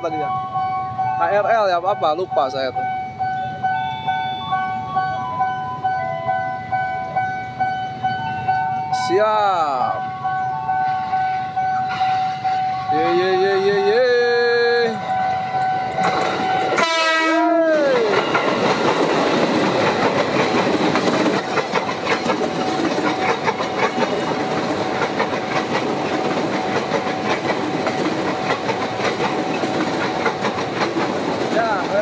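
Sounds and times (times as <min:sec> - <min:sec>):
train horn: 0:14.9 - 0:17.7
train wheels clattering on rails: 0:15.6 - 0:32.0.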